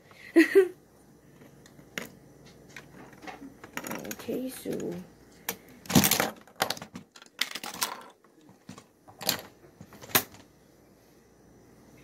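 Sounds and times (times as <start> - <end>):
plastic bricks clacking: 2.8 - 10.4.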